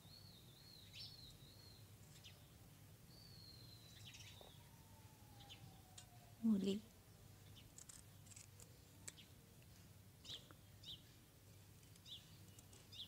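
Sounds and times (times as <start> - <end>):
faint bird chirps: 0.0 - 9.4, 10.2 - 11.2.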